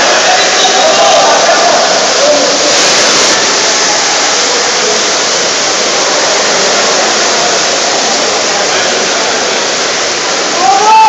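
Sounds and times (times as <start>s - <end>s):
water splashing from swimmers: 0.0s - 11.0s.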